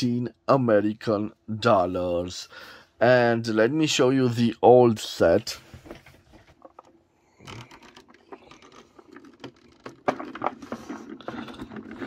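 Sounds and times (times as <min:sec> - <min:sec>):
chess pieces rattling and clicking: 0:06.6 - 0:12.0.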